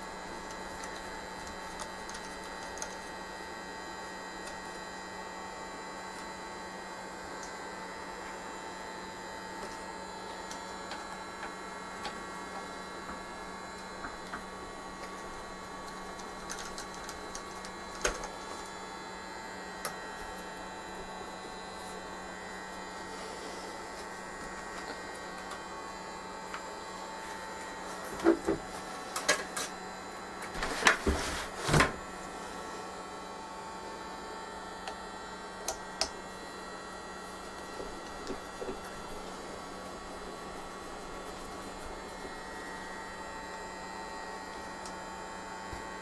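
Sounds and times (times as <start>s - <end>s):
steady electrical hum: 0.0s - 46.0s.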